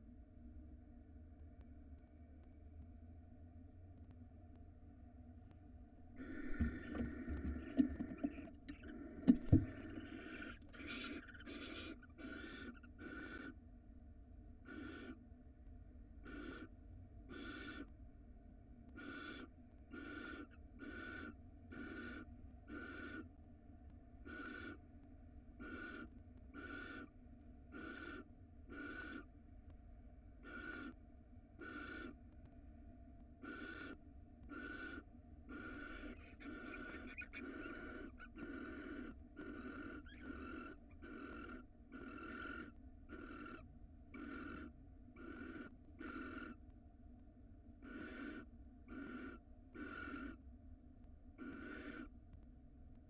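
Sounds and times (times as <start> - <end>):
owl long raspy hiss: 6.2 - 13.6, 14.7 - 15.2, 16.2 - 16.7, 17.3 - 17.9, 19.0 - 23.3, 24.2 - 24.8, 25.6 - 29.3, 30.4 - 31.0, 31.6 - 32.2, 33.4 - 43.6, 44.2 - 46.6, 47.8 - 50.4, 51.4 - 52.1
owl short hissing calls: 6.2 - 13.6, 14.7 - 15.2, 16.2 - 16.7, 17.3 - 17.9, 19.0 - 23.3, 24.3 - 24.8, 25.6 - 27.1, 27.7 - 29.3, 30.4 - 31.0, 31.6 - 32.2, 33.4 - 43.6, 44.2 - 46.6, 47.8 - 50.4, 51.4 - 52.1.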